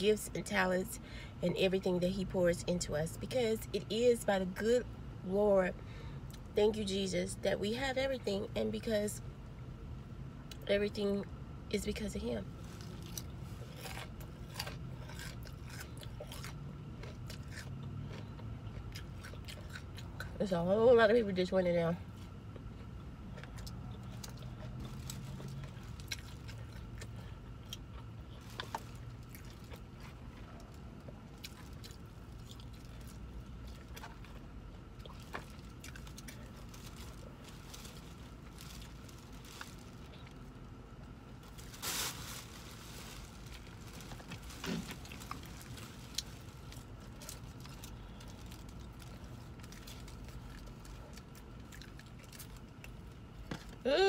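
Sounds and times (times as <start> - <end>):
car engine and air conditioner hum: 0.0 - 54.0
chewing and crunching food: 11.8 - 20.8, 22.1 - 53.8
crackle: 35.0 - 40.4, 41.0 - 53.0.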